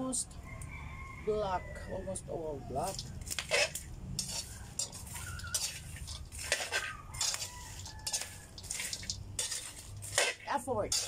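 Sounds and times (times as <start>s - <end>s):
metal spoon scraping a wok: 2.7s - 11.0s
dry beans rattling in a pan: 2.8s - 11.0s.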